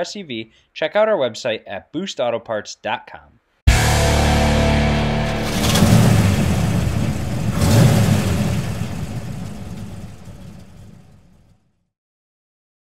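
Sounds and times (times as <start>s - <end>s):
rush of noise: 3.7s - 11.2s
surging engine-like rumbles: 3.9s - 11.5s.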